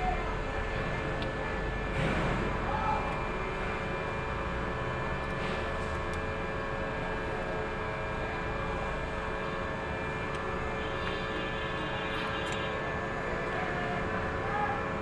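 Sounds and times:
steady mechanical drone: 0.0 - 15.0.

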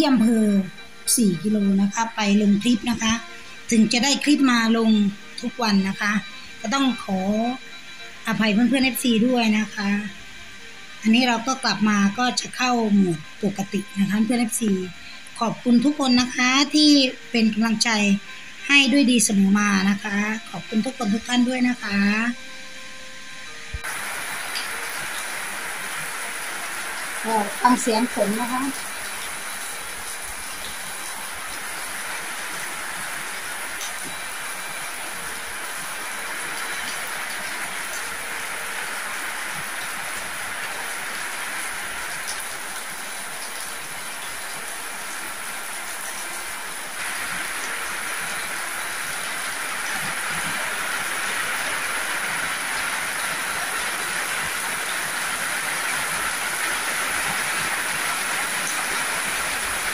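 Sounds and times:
heavy rain on metal roofs: 23.7 - 59.9
water streaming off eaves: 23.8 - 59.9.

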